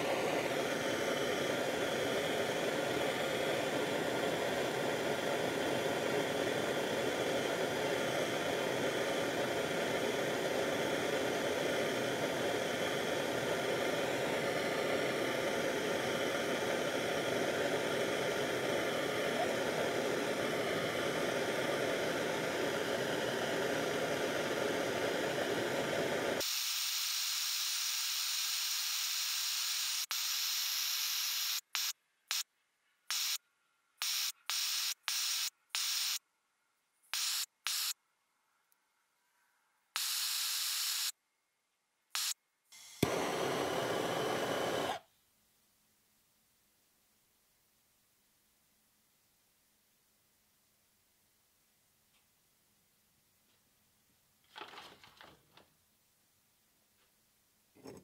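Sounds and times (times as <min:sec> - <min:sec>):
torch flame hissing: 0:00.0 - 0:32.4, 0:33.1 - 0:33.4, 0:34.0 - 0:36.2, 0:37.2 - 0:38.0, 0:40.0 - 0:41.1, 0:42.2 - 0:45.0.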